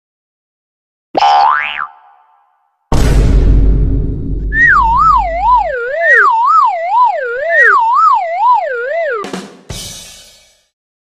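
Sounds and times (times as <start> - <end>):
cartoon explosion: 2.9 - 7.1
police siren wailing: 4.6 - 9.3.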